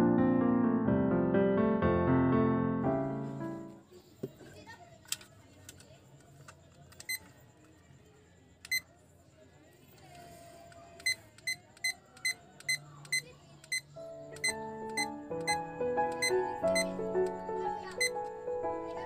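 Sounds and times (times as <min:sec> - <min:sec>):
background music: 0:00.0 - 0:03.8, 0:14.0 - 0:19.0
digital timer button beeps: 0:11.0 - 0:17.0, 0:17.9 - 0:18.2.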